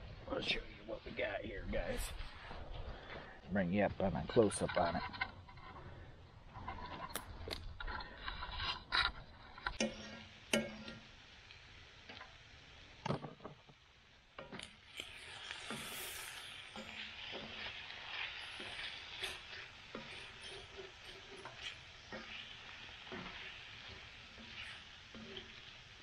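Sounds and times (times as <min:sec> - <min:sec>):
sausage sizzling in a pan: 0:05.4 - 0:26.0.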